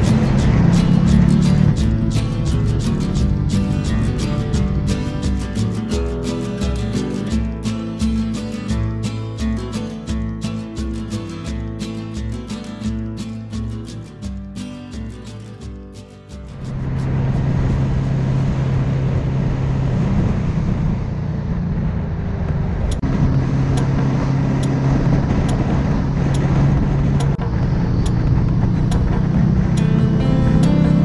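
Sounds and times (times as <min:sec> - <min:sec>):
motorcycle engine running: 0:00.0 - 0:31.0
wind rushing over microphone: 0:16.5 - 0:30.0.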